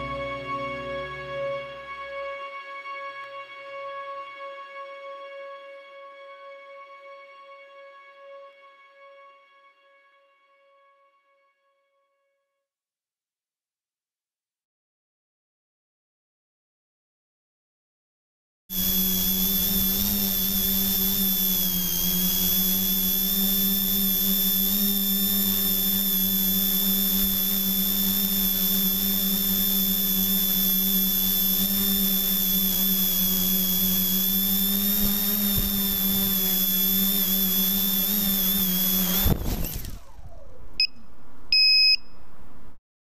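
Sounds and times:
quadcopter motors whining: 0:18.7 - 0:42.0
short electronic beeps: 0:40.8 - 0:42.3.

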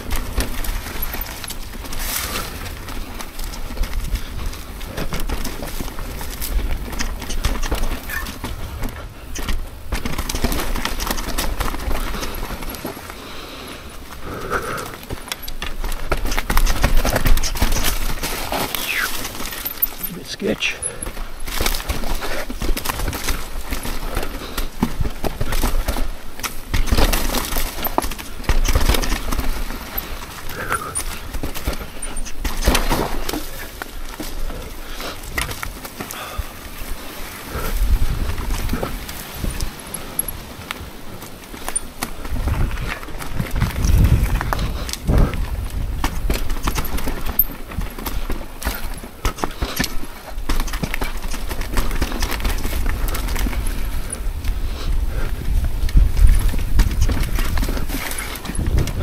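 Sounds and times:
bike rattling over rocks: 0:00.0 - 0:59.0
wind rumbling on microphone: 0:21.0 - 0:59.0
wind on microphone: 0:37.5 - 0:40.2, 0:42.2 - 0:46.8, 0:52.5 - 0:59.0.

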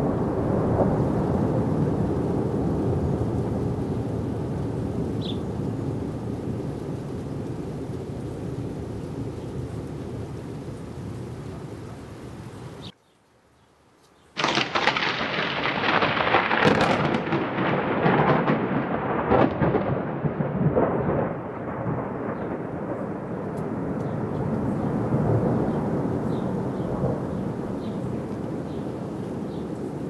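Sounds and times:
thunder crack and rumble: 0:00.0 - 0:06.8, 0:14.4 - 0:28.7
steady rain: 0:00.0 - 0:30.0.

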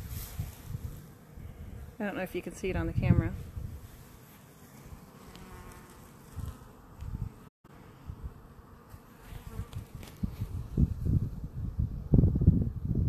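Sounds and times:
wind buffeting microphone: 0:00.0 - 0:04.0, 0:06.3 - 0:08.4, 0:09.5 - 0:13.0
honeybees buzzing: 0:00.0 - 0:12.4.

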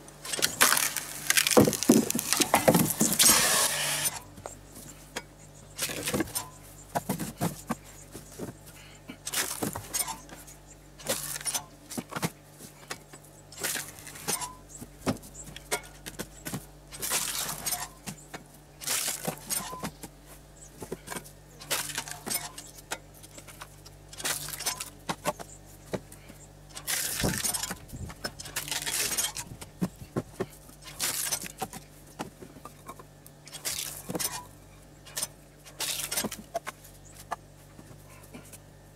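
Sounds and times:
wood splitting cracks: 0:00.3 - 0:04.2, 0:18.8 - 0:19.7, 0:24.1 - 0:25.0, 0:26.7 - 0:29.5, 0:30.8 - 0:31.8, 0:33.5 - 0:34.4
pressure washer humming: 0:00.6 - 0:04.2.

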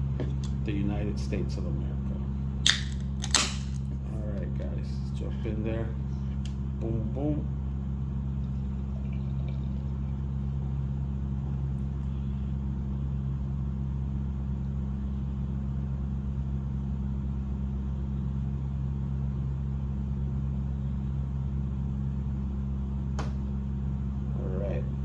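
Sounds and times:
air conditioner humming: 0:00.0 - 0:25.0
beer pouring and fizzing: 0:08.4 - 0:10.5.

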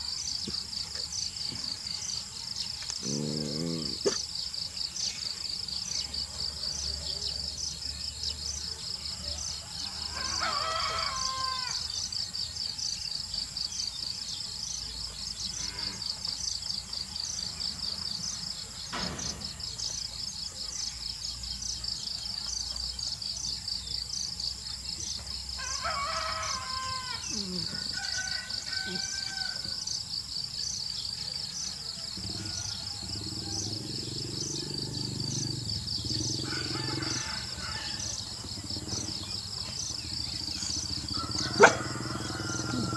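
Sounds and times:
insects chirring: 0:00.0 - 0:42.9
rooster crowing: 0:09.6 - 0:11.9, 0:25.6 - 0:29.8, 0:36.4 - 0:38.3, 0:41.1 - 0:42.9.

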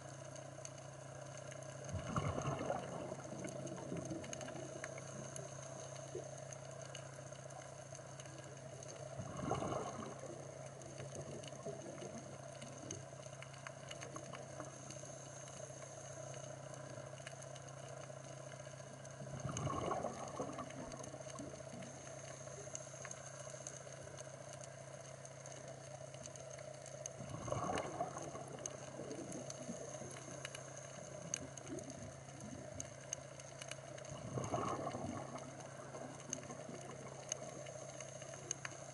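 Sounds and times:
faint reef crackling: 0:00.0 - 0:38.9
steady underwater hum: 0:00.0 - 0:38.9
diver's bubbles gurgling: 0:01.8 - 0:07.0, 0:08.3 - 0:13.1, 0:19.1 - 0:22.0, 0:27.0 - 0:33.1, 0:33.8 - 0:38.7.

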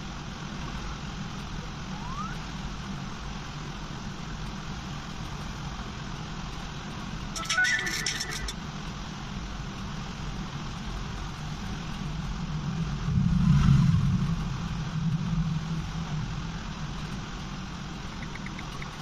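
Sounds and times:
low rumble: 0:10.9 - 0:19.0.

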